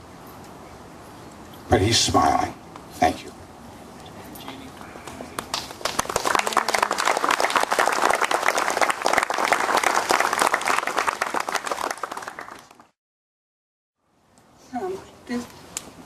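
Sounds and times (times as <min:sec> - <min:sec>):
crowd applauding: 0:05.4 - 0:13.0.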